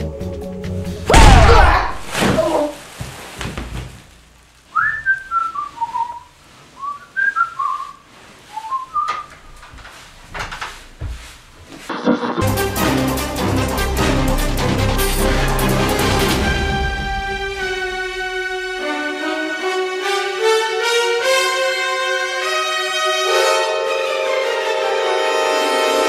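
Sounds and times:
loud crash: 1.1s - 2.7s
person whistling a tune: 4.8s - 9.3s.

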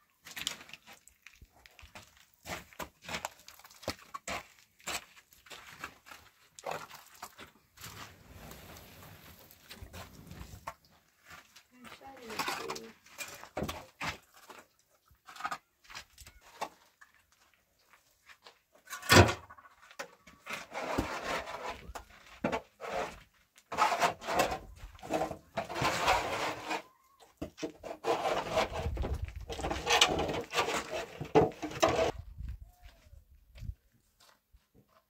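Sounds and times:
scraping and rubbing: 19.5s - 32.2s.

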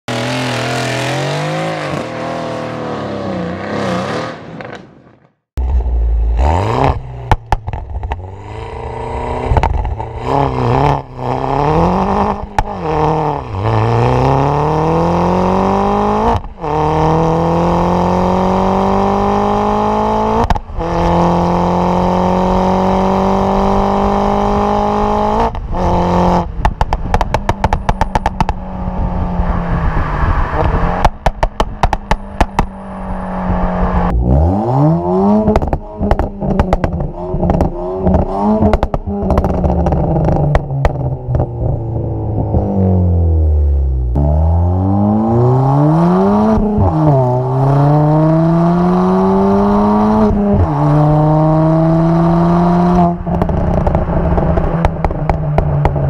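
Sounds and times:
other car engine: 0.1s - 56.0s
exhaust pops and crackles: 7.2s - 8.2s, 9.5s - 10.1s, 20.4s - 20.8s, 26.4s - 28.7s, 30.6s - 32.8s, 35.4s - 41.8s, 53.1s - 56.0s
car engine accelerating through gears: 8.1s - 26.5s, 31.9s - 56.0s.

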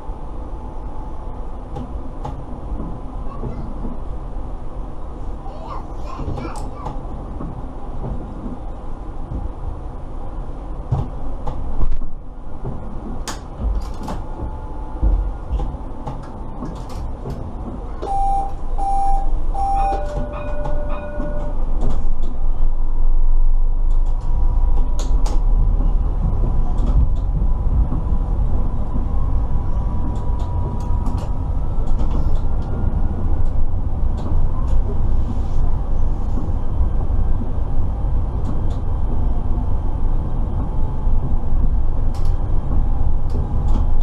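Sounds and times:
tram running noise: 0.0s - 44.0s
short electronic beeps: 18.0s - 21.6s
scattered clicks: 42.1s - 42.4s.

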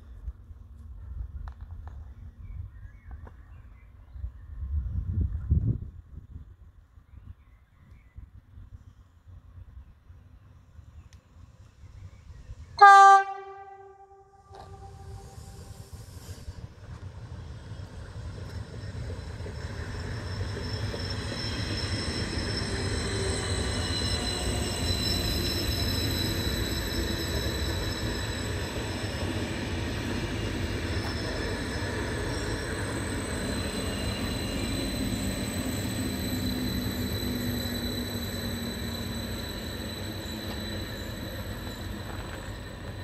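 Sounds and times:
high-pitched train whine: 9.7s - 43.0s
train rolling rumble: 14.4s - 43.0s.

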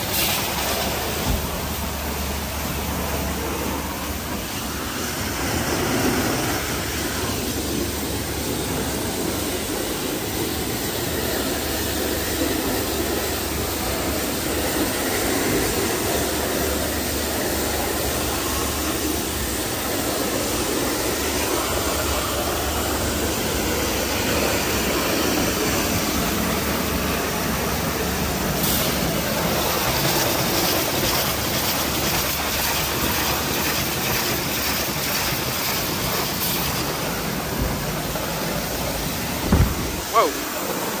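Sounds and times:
car wash rushing noise: 0.0s - 41.0s
low machine hum: 35.6s - 41.0s.

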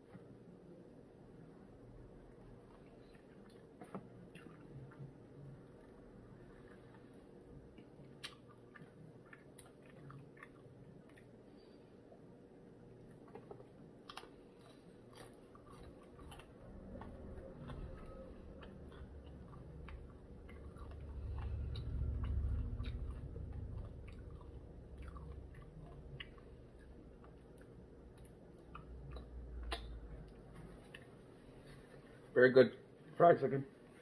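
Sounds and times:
person chewing crispy chicken: 13.1s - 30.0s.

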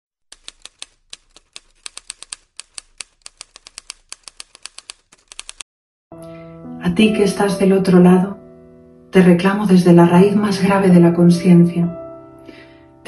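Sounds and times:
manual typewriter typing: 0.3s - 5.6s.

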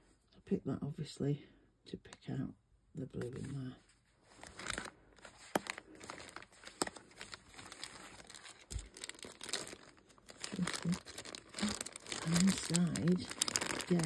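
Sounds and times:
plastic bag crinkling: 4.3s - 14.0s.

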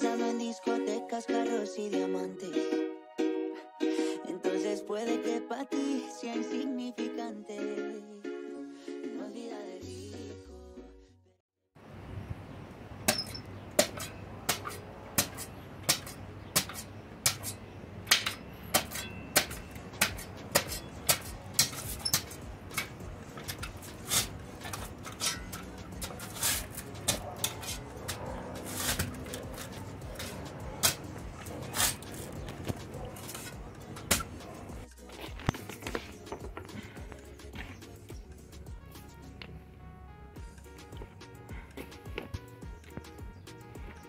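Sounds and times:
spade chopping into hard earth: 13.0s - 34.5s.

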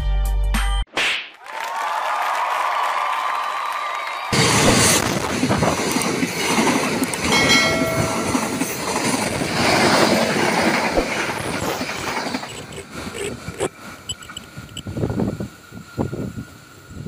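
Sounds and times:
train wheels clattering on rails: 4.4s - 14.8s.

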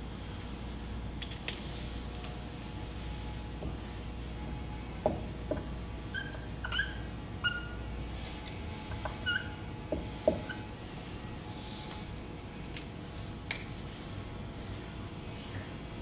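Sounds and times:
marker squeaking on whiteboard: 6.1s - 7.8s, 9.2s - 9.6s.

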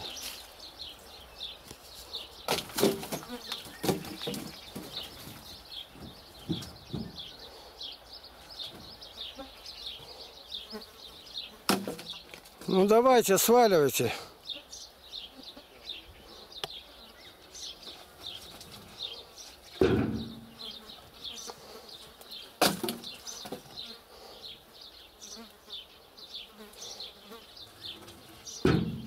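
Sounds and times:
logs landing with heavy thuds: 2.4s - 7.3s, 11.6s - 12.8s, 19.7s - 20.6s, 22.6s - 23.7s, 28.6s - 29.0s.

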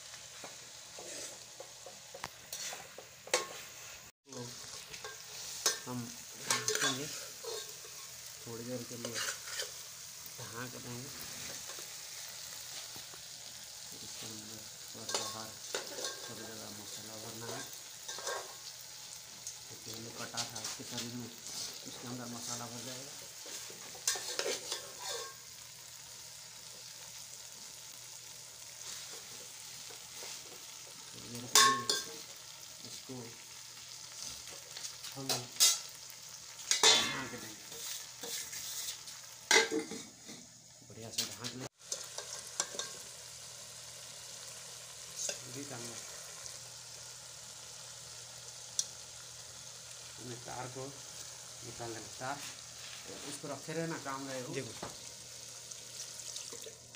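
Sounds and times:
chicken sizzling in pot: 0.0s - 56.9s
metal spoon scraping pot: 9.0s - 9.8s, 24.0s - 25.4s.

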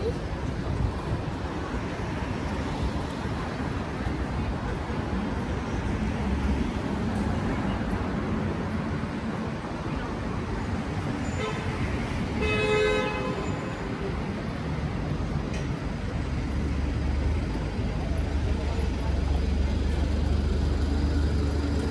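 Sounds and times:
city street traffic: 0.0s - 21.9s
vehicle horn toots: 12.4s - 13.7s.

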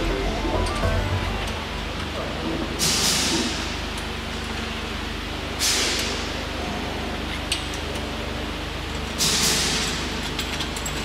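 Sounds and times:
steady low hum: 0.0s - 5.6s.

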